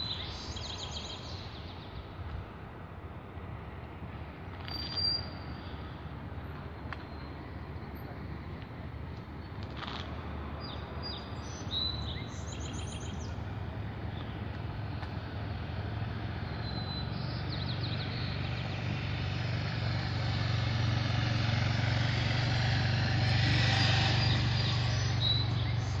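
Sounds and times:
small birds chirping: 0.0s - 2.0s, 10.6s - 13.5s, 16.3s - 26.0s.

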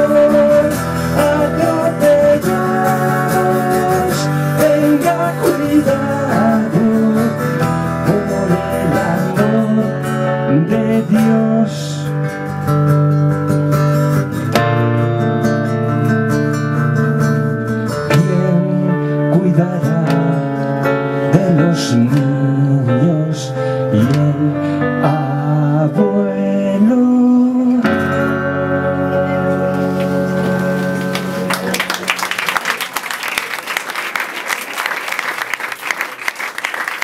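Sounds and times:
man singing: 0.0s - 12.4s, 17.9s - 31.6s
keyboard: 0.0s - 32.6s
guitar: 0.0s - 33.5s
audience applause: 30.0s - 37.0s.

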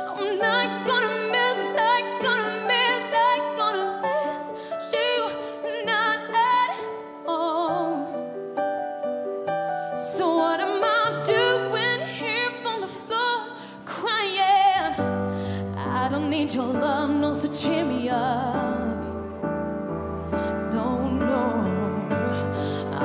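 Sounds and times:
woman singing with vibrato: 0.0s - 8.2s, 10.0s - 19.2s, 20.5s - 23.0s
piano: 0.0s - 23.0s.

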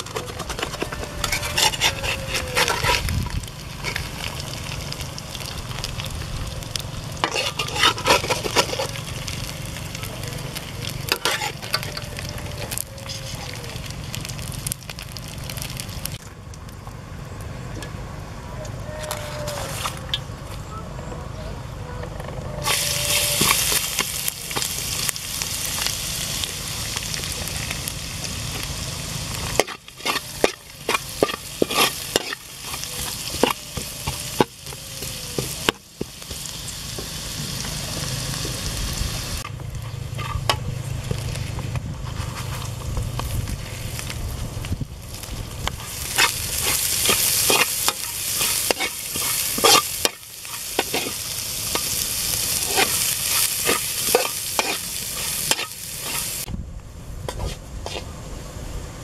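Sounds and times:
metal spatula scraping a wok: 0.0s - 4.4s, 7.1s - 9.5s, 10.5s - 13.6s, 22.6s - 25.0s, 29.1s - 37.1s, 39.4s - 40.6s, 42.0s - 42.8s, 45.2s - 56.5s, 57.3s - 58.1s
food sizzling in hot oil: 0.0s - 16.2s, 22.6s - 56.5s.

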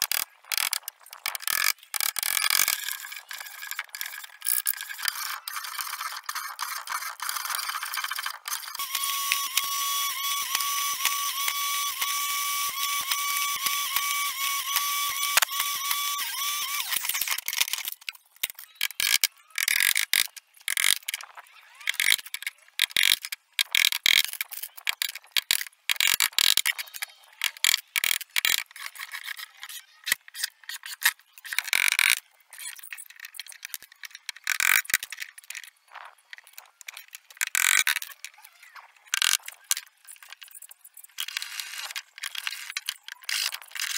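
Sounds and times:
table saw motor whining: 5.1s - 17.4s.

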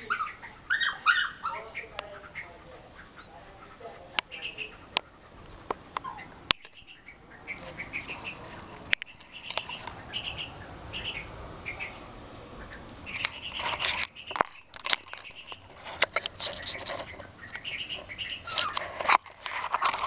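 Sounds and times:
baby birds chirping: 0.0s - 20.0s
leaves rustling against camera: 0.0s - 20.0s.

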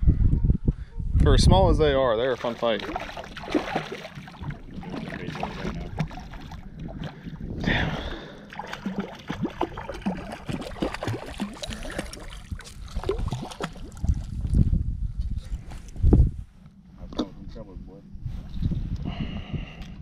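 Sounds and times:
water lapping against boat hull: 2.2s - 14.6s.

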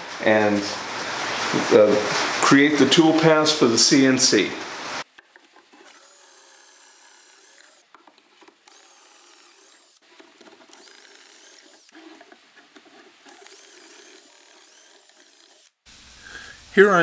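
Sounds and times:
cordless drill boring wood: 5.3s - 15.8s.

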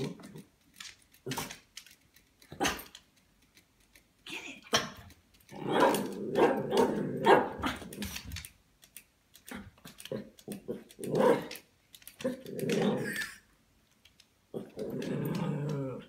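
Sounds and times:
small dog barking and growling: 4.7s - 8.2s, 9.5s - 11.6s, 12.2s - 13.4s.

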